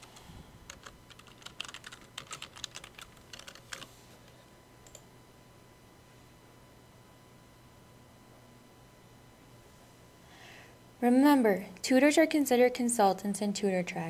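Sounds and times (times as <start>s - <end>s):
typing on computer keyboard: 0.7s - 3.9s.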